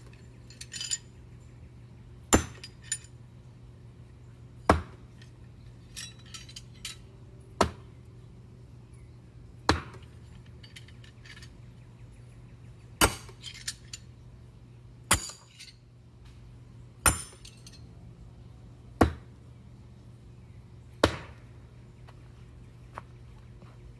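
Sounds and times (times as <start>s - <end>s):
knives clinking in hand: 0.1s - 1.1s
knives striking wooden target: 4.7s - 5.1s, 9.7s - 10.2s, 13.0s - 13.5s, 21.0s - 21.4s.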